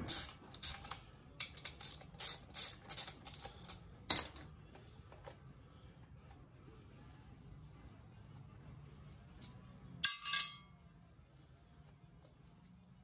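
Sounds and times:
socket wrench clicking: 0:00.0 - 0:04.4.

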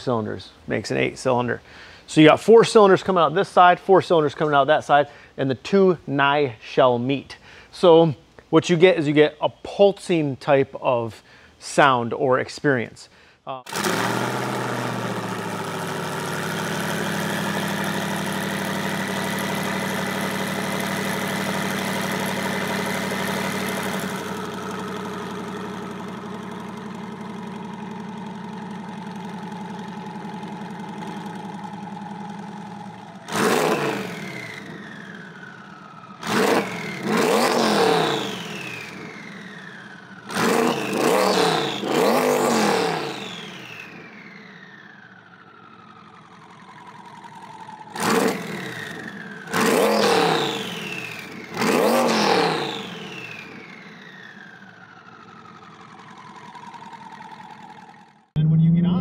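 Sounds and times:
engine revving: 0:13.6 - 0:59.0
car engine idling: 0:13.7 - 0:59.0.

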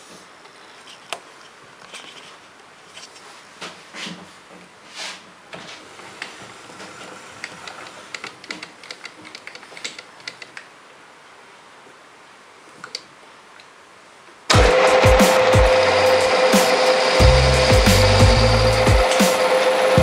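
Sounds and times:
lathe motor humming: 0:14.5 - 0:20.0.

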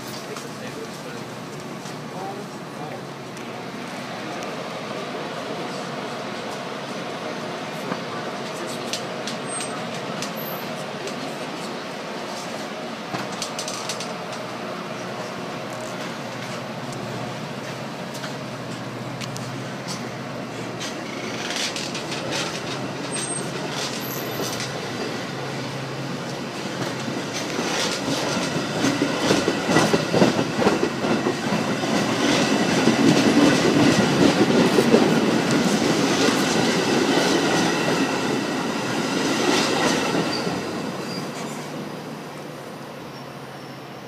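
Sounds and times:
train rolling past: 0:00.0 - 0:44.0
wheels clicking over rail joints: 0:13.1 - 0:14.5, 0:20.8 - 0:24.8.

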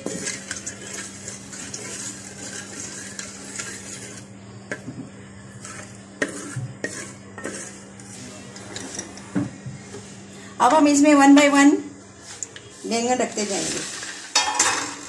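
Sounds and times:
spatula scraping metal pot: 0:00.0 - 0:04.9, 0:05.5 - 0:09.2
seeds sizzling in oil: 0:00.0 - 0:08.2, 0:12.2 - 0:15.0.

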